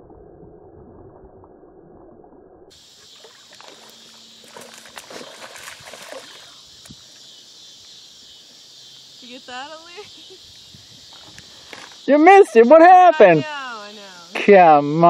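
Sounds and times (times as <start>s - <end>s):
fish splashing at the surface: 2.7s - 6.9s
insects chirring: 2.7s - 15.0s.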